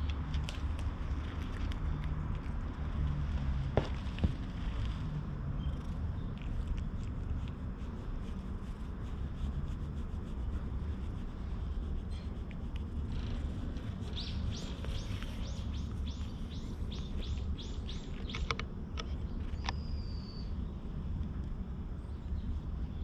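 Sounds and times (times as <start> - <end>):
steady low rumble: 0.0 - 23.0
songbird calling: 14.0 - 18.6, 19.4 - 20.7.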